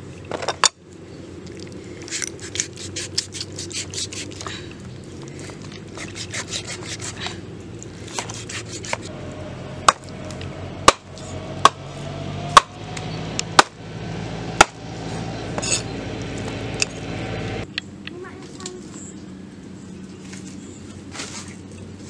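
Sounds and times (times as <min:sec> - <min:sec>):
cleaver chopping on wooden block: 0:10.8 - 0:11.8, 0:13.6 - 0:13.8.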